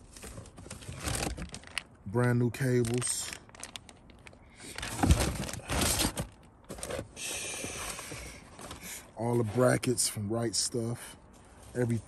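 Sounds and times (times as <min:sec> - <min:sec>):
plastic bag rustling: 0:00.0 - 0:07.0.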